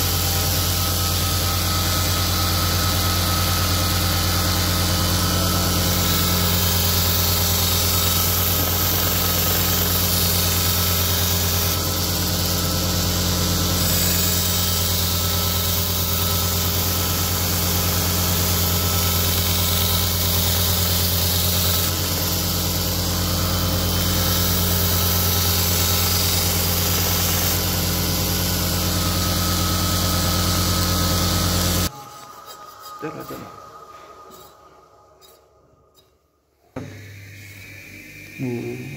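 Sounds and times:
bench grinder motor humming: 0.0 - 31.9, 36.8 - 38.9
blade grinding hiss: 5.2 - 36.1.

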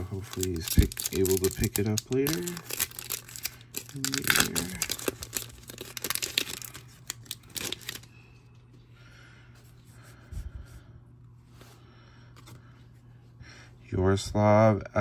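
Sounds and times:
cards rustling: 0.0 - 8.1
foil wrapper crinkling and tearing: 0.0 - 8.1.

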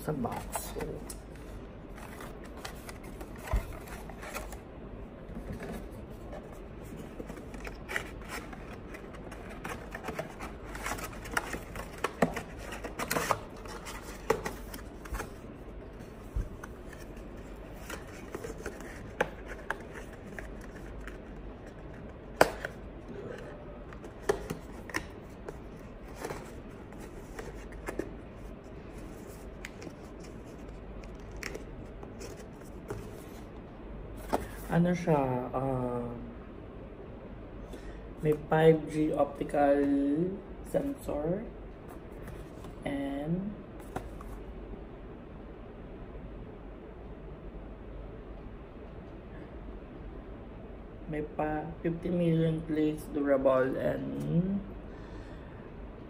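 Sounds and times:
low background hum: 0.0 - 56.0
packaging rustling and scraping: 1.9 - 4.6, 5.4 - 33.5.

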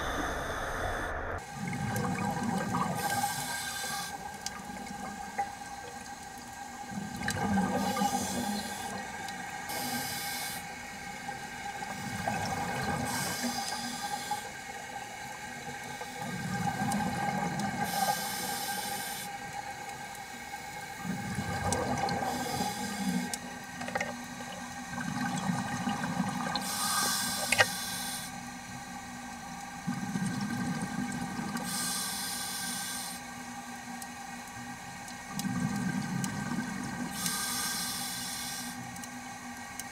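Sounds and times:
exhaled bubbles rumbling underwater: 0.0 - 18.6, 20.7 - 27.6, 29.6 - 31.8, 34.8 - 37.5
faint steady hum: 0.0 - 39.9
scuba regulator inhale hiss: 3.0 - 4.2, 9.7 - 10.7, 13.1 - 14.5, 17.8 - 19.3, 22.2 - 23.3, 26.6 - 28.3, 31.6 - 33.2, 37.1 - 38.8.

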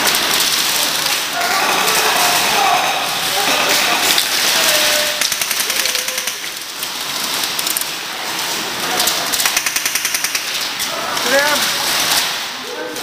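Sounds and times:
airsoft guns firing bursts: 5.2 - 6.6, 9.3 - 10.6.

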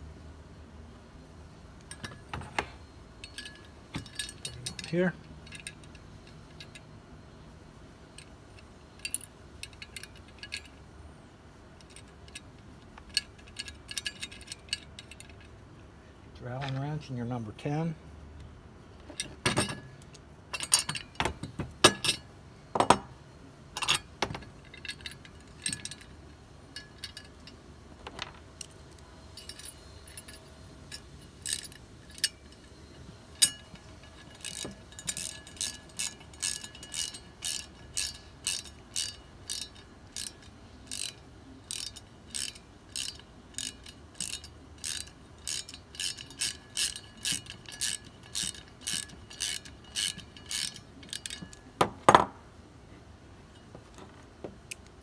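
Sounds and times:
allen wrench clicking on metal: 3.2 - 6.9, 8.2 - 10.8, 11.8 - 15.5, 19.0 - 22.3, 23.8 - 52.3.

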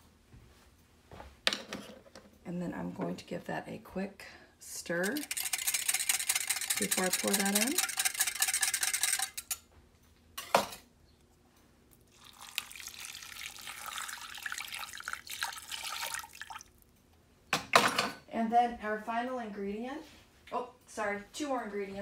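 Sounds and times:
spoon clinking in glass cup: 5.1 - 9.6
liquid pouring trickle: 12.0 - 16.8.

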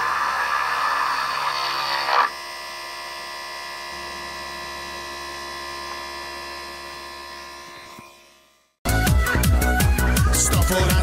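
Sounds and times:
motor spinning freely: 0.0 - 8.4
motor drill bit cutting chipboard: 0.0 - 8.6.

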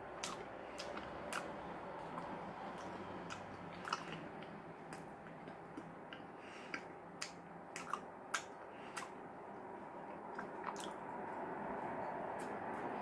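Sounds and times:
person chewing with wet clicks: 0.0 - 9.2, 10.0 - 11.2.

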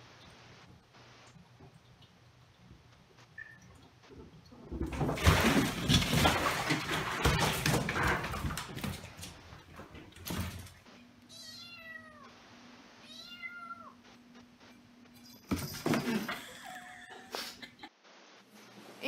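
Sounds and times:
water splashing in bathtub: 3.4 - 10.8
kitten meowing: 11.3 - 12.3, 13.0 - 14.0.

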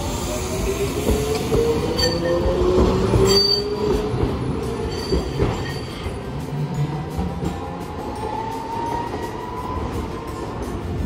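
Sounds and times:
streetcar wheels whining: 0.0 - 11.0
rail clicks: 0.3 - 11.0.

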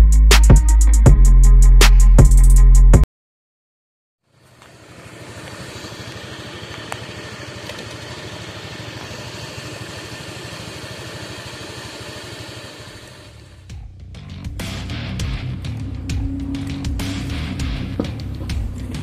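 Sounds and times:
motorcycle engine idling: 4.3 - 19.0.

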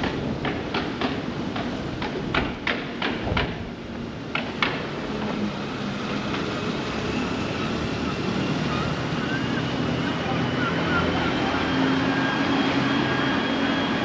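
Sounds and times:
sharp knocks: 0.0 - 3.6
street ambience: 0.0 - 14.0.

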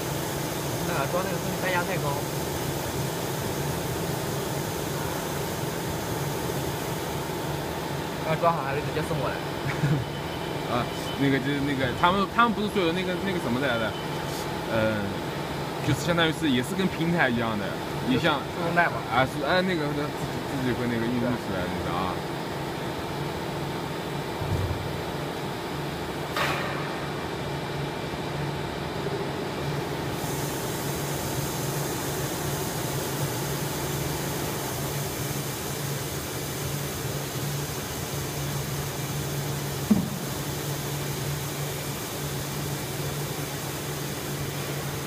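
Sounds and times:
machine mechanical hum: 0.0 - 45.0
hiss: 30.1 - 45.0
brief knocks: 39.9 - 40.2.

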